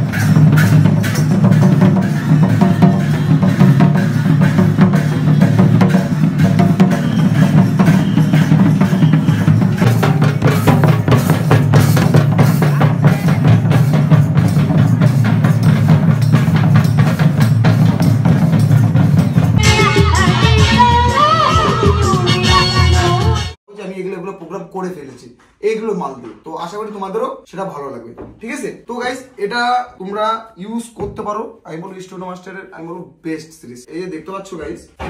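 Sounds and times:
fast hand drumming on barrel drums: 0.0 - 19.6
melody over heavy low beat: 7.8 - 23.4.

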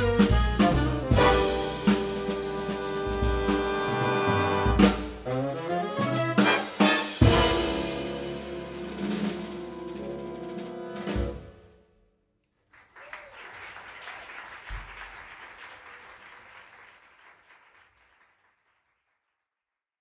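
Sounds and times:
jazz big band chord: 0.0 - 11.7
drum hit: 6.6 - 10.0
audience applauding: 12.6 - 19.1.

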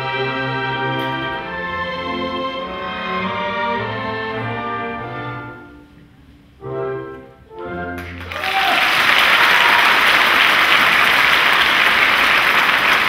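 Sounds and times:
orchestral music: 0.0 - 13.0
audience applause: 8.0 - 13.0.

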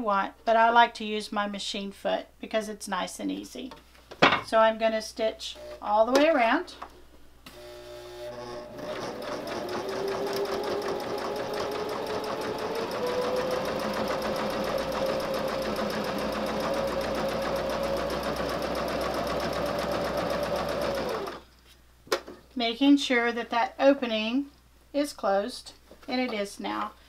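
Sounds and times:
electric sewing machine stitching: 7.5 - 21.4.

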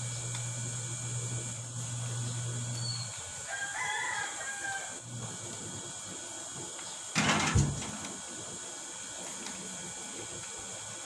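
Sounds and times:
rooster crowing: 3.4 - 5.0.

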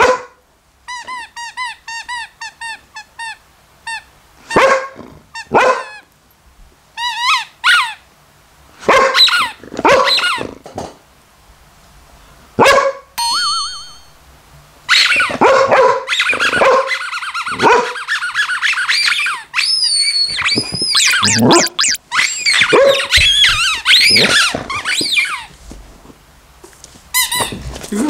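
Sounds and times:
dog barking angrily: 0.0 - 0.4, 4.5 - 6.0, 8.8 - 10.5, 12.6 - 13.1, 15.2 - 18.2, 21.0 - 24.7
toy electronic warbling tone: 13.2 - 14.2, 20.3 - 23.6.

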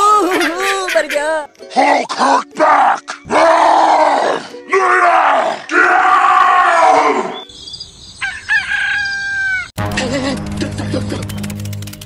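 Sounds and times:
rooster crowing: 8.2 - 9.7.

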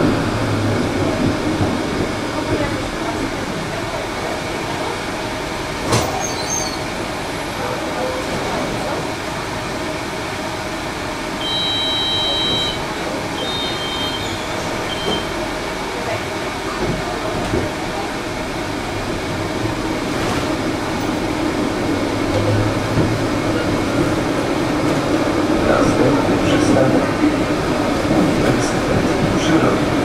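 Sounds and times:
tram motor rumble: 0.0 - 30.0
door-warning beep: 11.4 - 12.8, 13.4 - 15.3.

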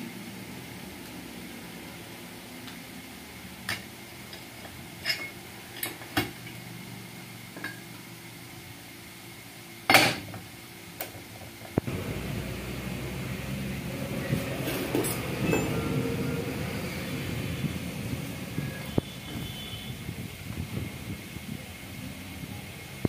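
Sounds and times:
steady low hum: 11.8 - 23.0.

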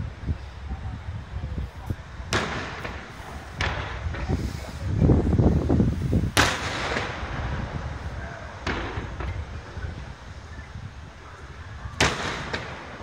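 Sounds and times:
deep rumble of bursts: 0.0 - 13.0
firework shells bursting: 2.3 - 10.5, 11.3 - 13.0.

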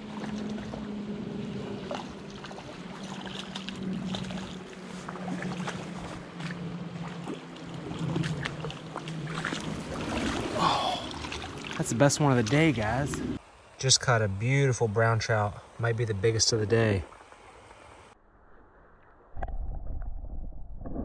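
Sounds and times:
fish splashing: 0.0 - 13.4
running water: 0.0 - 18.1.

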